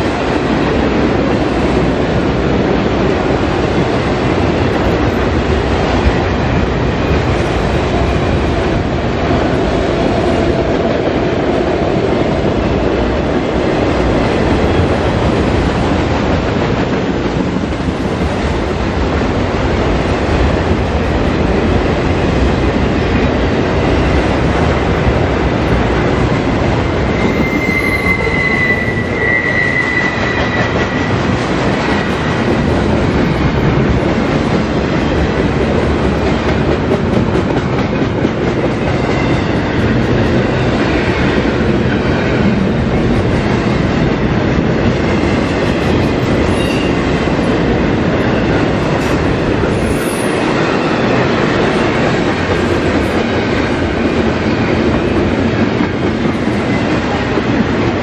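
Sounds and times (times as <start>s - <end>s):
freight train rumbling past: 0.0s - 58.0s
high wheel squeal: 27.0s - 31.2s, 46.5s - 47.0s.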